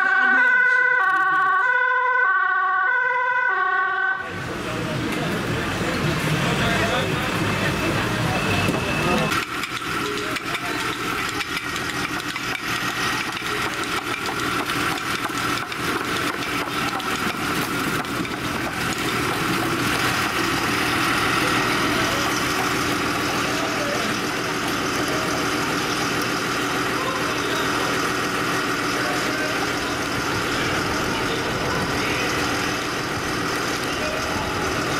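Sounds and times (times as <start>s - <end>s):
engine running steadily: 4.2s - 34.9s
rattling clicks: 9.3s - 19.7s.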